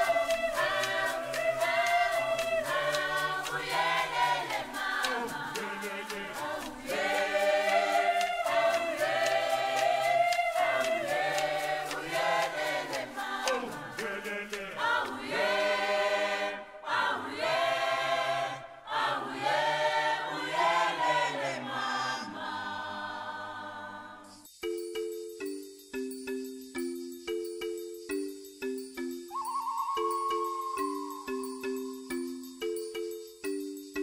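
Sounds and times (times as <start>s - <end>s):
light steady beat: 0.0s - 16.1s, 24.4s - 34.0s
choir singing: 0.0s - 24.5s.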